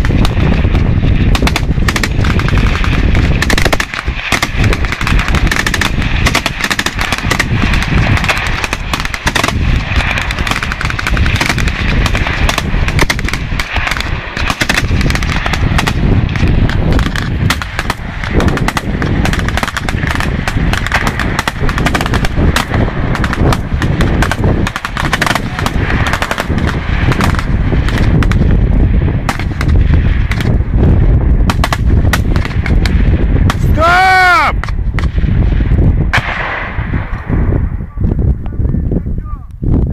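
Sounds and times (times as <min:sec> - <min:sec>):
automatic rifle fire: 0:00.0 - 0:28.5, 0:31.5 - 0:33.6
machine gun firing: 0:00.0 - 0:28.6, 0:29.2 - 0:30.6, 0:31.4 - 0:33.6.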